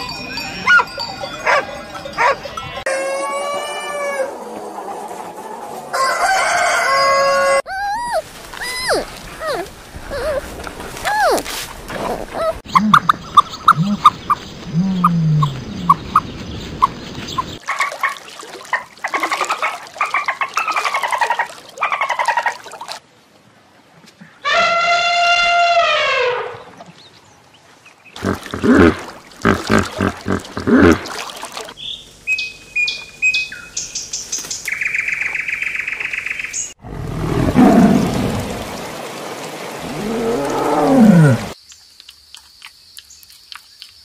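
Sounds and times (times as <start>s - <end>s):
elephant trumpeting: 28.2s - 31.1s.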